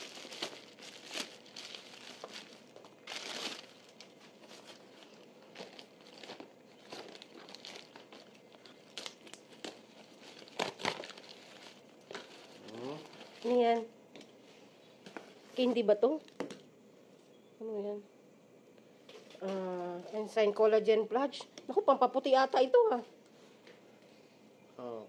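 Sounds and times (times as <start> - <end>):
plastic bags crinkling: 0.0 - 13.8.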